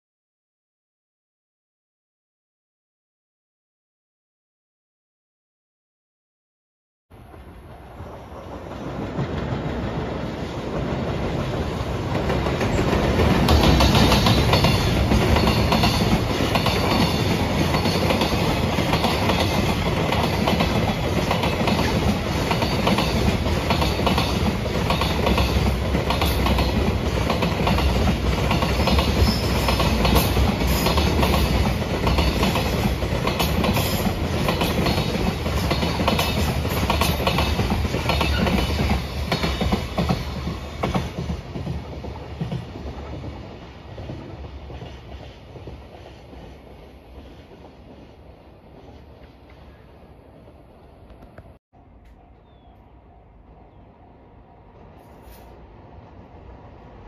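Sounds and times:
freight train rumbling past: 0:07.1 - 0:57.0
train wheels clicking: 0:07.3 - 0:49.8.

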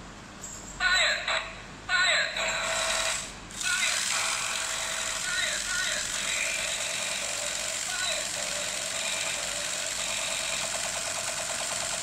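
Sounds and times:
toy laser gun sound effects: 0:02.4 - 0:10.8.

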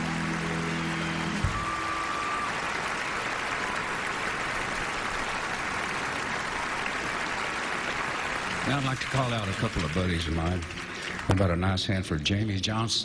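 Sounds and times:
band music: 0:00.0 - 0:03.0
audience applauding: 0:00.0 - 0:12.2.

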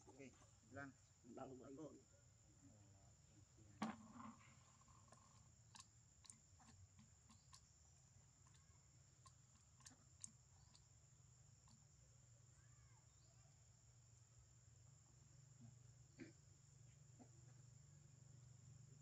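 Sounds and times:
baby monkey sucking and swallowing: 0:05.1 - 0:07.7, 0:08.4 - 0:10.9.

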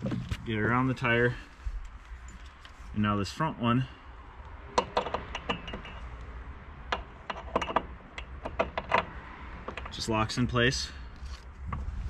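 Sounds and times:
metal fitting clicking and rattling: 0:04.8 - 0:06.0, 0:06.9 - 0:10.0.

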